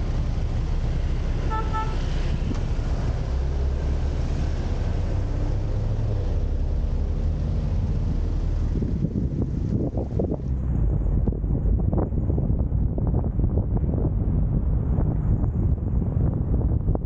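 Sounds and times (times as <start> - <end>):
wind or road noise hiss: 0.0 - 10.3
moving vehicle rumble: 0.0 - 17.0.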